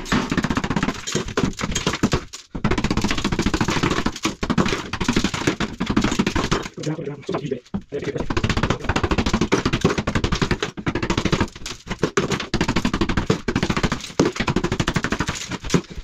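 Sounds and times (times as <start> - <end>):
hammer and chisel knocking tiles: 0.0 - 6.8, 7.7 - 16.0.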